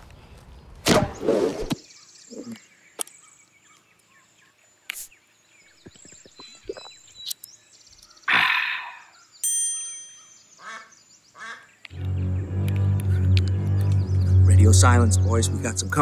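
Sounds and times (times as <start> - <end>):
birds chirping: 0.0 - 16.0
ducks quacking: 10.6 - 16.0.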